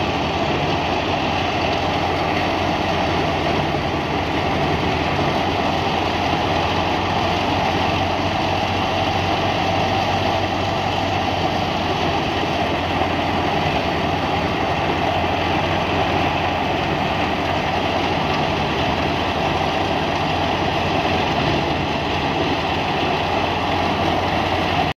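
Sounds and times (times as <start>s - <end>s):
tractor-driven thresher running: 0.0s - 25.0s.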